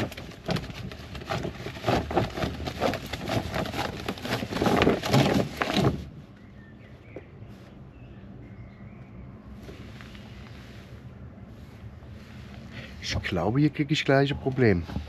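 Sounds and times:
plastic sheeting crinkling: 0:00.0 - 0:06.1
faint bird chirps: 0:06.3 - 0:10.8.

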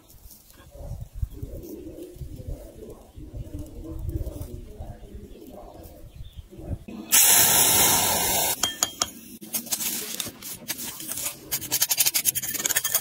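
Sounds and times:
loud hiss: 0:07.1 - 0:08.6
metal blade scraping sand: 0:09.5 - 0:13.0.

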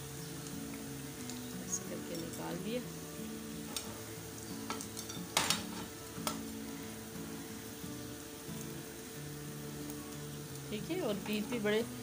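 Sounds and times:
food sizzling in hot oil: 0:00.0 - 0:12.0
metal skimmer scraping a pan: 0:03.6 - 0:06.5.

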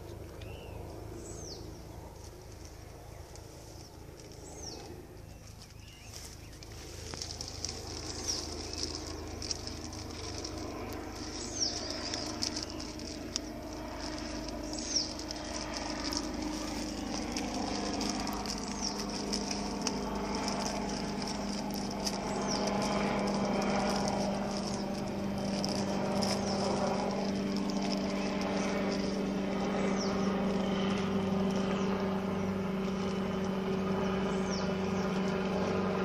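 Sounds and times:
bird chirping: 0:00.0 - 0:02.0, 0:02.7 - 0:33.4
plastic wrap crackling: 0:06.6 - 0:30.0.

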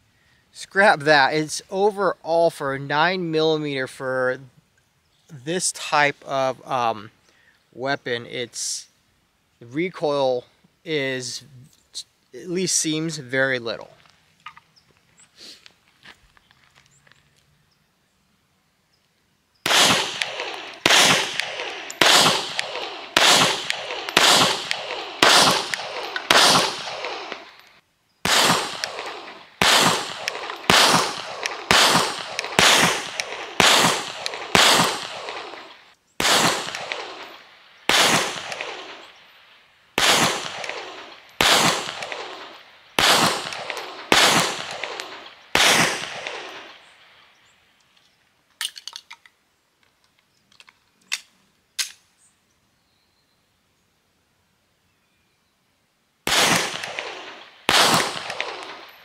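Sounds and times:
pistol gunshots: 0:19.7 - 0:47.4, 0:56.3 - 0:59.0.

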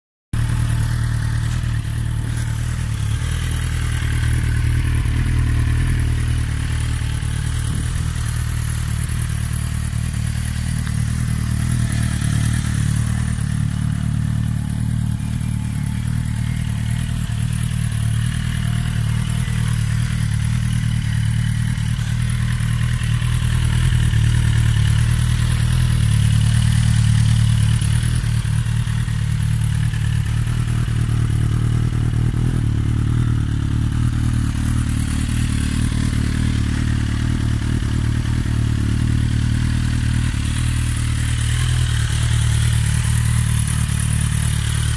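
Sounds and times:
motorcycle engine idling: 0:00.4 - 0:44.9.

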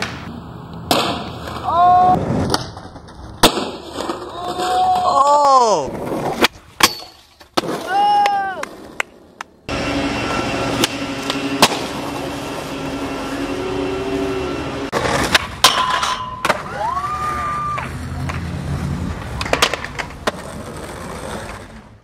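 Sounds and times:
skateboard wheels rolling on concrete: 0:00.0 - 0:22.0
skateboard clacking on landing: 0:19.3 - 0:21.6.

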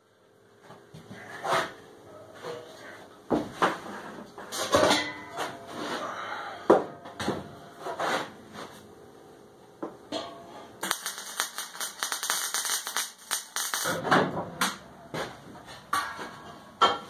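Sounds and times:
arc welding crackle: 0:10.8 - 0:14.0.

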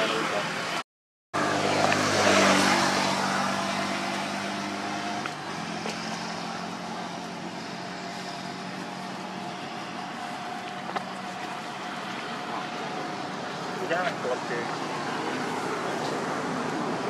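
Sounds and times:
vehicle engine running: 0:01.4 - 0:16.8.

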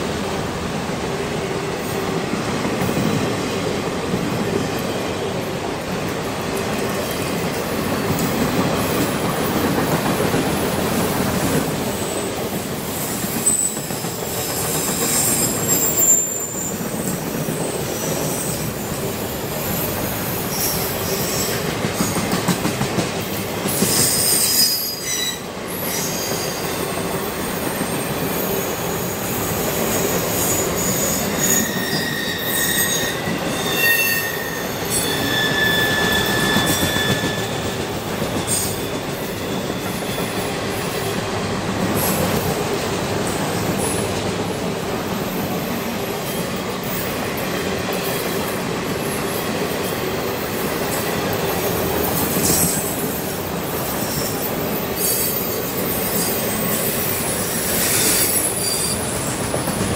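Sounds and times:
train wheels rumbling on rails: 0:00.0 - 0:59.9
high-pitched wheel squeals: 0:13.4 - 0:18.9, 0:23.9 - 0:26.7, 0:30.0 - 0:40.6, 0:54.0 - 0:59.1.

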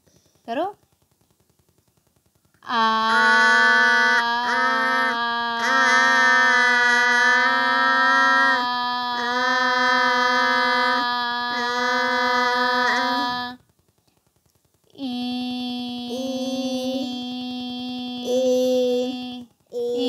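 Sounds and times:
person chanting a held note: 0:02.6 - 0:13.6, 0:15.0 - 0:20.0.

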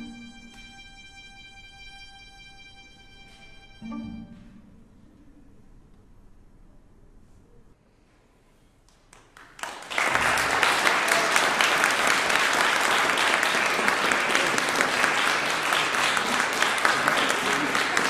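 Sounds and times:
audience applause: 0:09.1 - 0:18.0.

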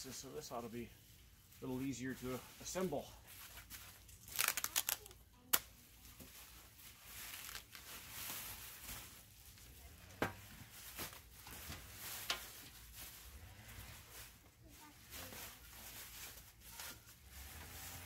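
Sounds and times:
plastic wrap crinkling and rustling: 0:01.5 - 0:18.0.

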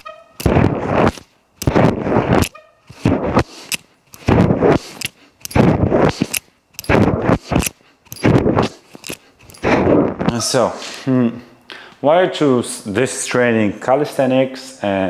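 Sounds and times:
pull-up bar noisy bursts: 0:00.0 - 0:08.8.

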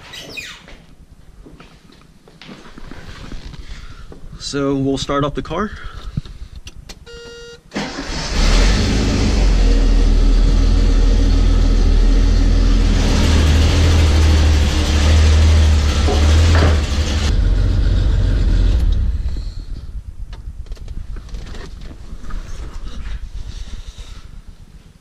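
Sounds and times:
car engine starting and running: 0:07.7 - 0:21.6.

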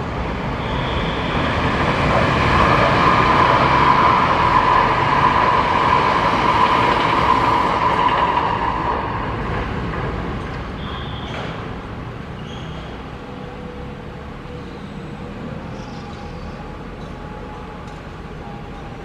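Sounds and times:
street traffic rumble: 0:00.0 - 0:19.0
high squeal: 0:00.5 - 0:09.5, 0:10.7 - 0:11.6, 0:12.3 - 0:17.8.

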